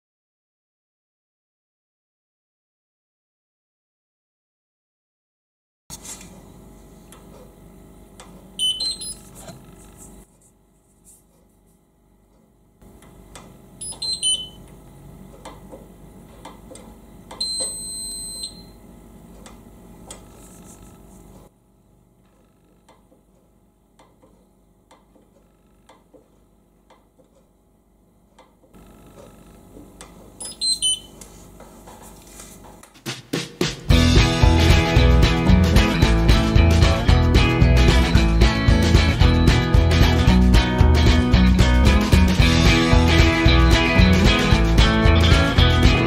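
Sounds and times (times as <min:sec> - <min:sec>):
falling electronic beep tones: 0:08.6 - 0:09.2, 0:13.8 - 0:14.6, 0:17.4 - 0:18.7, 0:30.4 - 0:31.1
single high beep: 0:08.6 - 0:09.2, 0:13.8 - 0:14.6, 0:17.4 - 0:18.8, 0:30.4 - 0:31.1.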